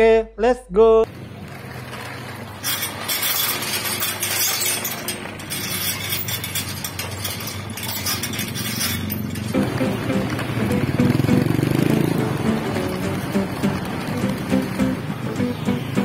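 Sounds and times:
sliding metal gate rolling: 1.1s - 16.0s
gate bars rattling and clinking: 1.5s - 10.8s.

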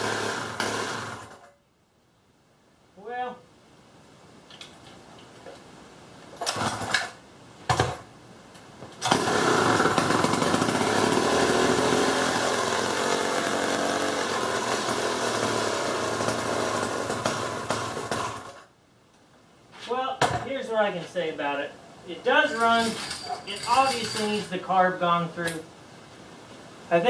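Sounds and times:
gas engine starting and running: 9.0s - 18.6s.

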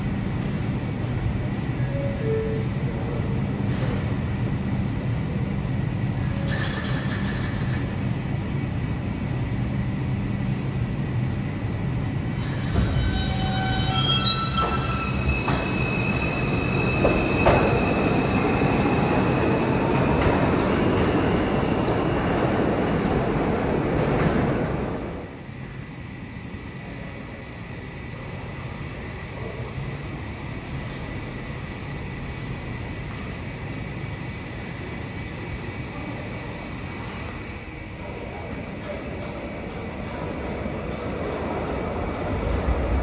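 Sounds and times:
rail noise: 0.0s - 43.0s
subway train humming: 0.0s - 43.0s
high wheel squeal: 12.4s - 19.0s.

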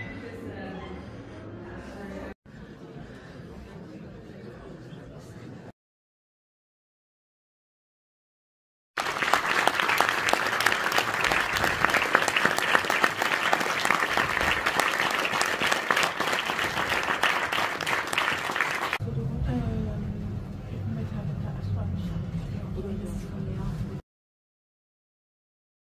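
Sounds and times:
audience applauding: 9.0s - 19.0s.

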